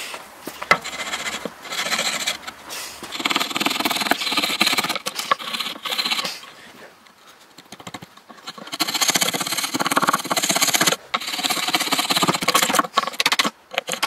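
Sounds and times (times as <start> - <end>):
chisel scraping wood: 0.5 - 6.6, 7.6 - 14.0.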